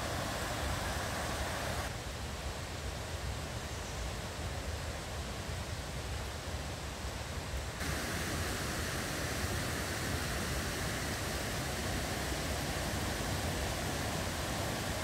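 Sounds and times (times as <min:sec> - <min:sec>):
waterfall rushing water: 0:00.0 - 0:02.0, 0:07.8 - 0:15.0.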